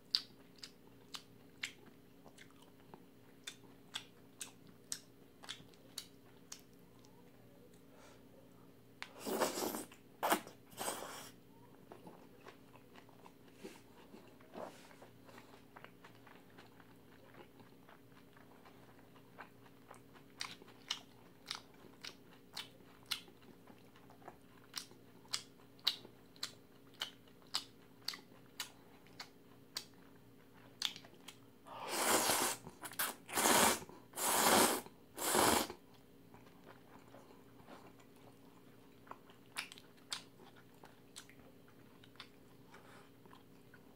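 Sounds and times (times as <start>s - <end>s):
faint steady hum: 0.0s - 43.9s
wet chewing: 0.1s - 7.2s, 11.9s - 31.4s, 32.0s - 43.9s
noodles being slurped: 9.2s - 11.3s, 31.8s - 35.8s.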